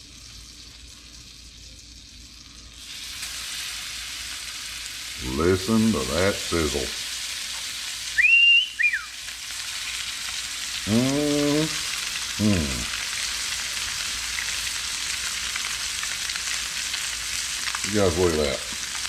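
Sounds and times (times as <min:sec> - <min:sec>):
fish frying in butter: 0:00.0 - 0:19.0
rising and falling whistle: 0:08.2 - 0:09.2.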